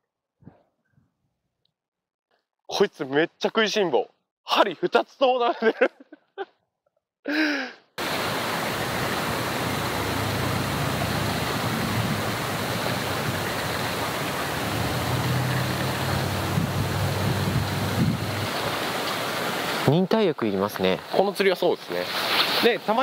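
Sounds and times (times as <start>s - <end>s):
wind blowing across microphone: 8.7s - 18.9s.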